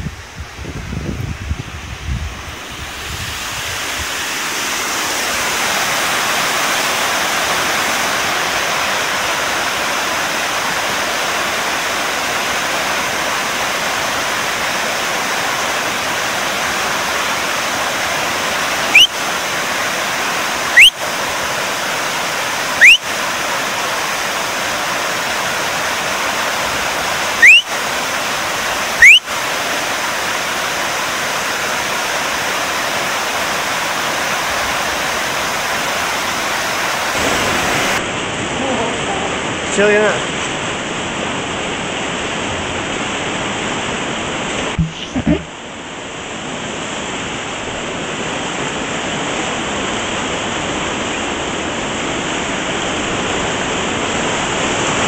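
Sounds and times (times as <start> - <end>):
loud rising chirps: 18.9 - 19.1, 22.8 - 23.0, 27.4 - 27.7, 29.0 - 29.2.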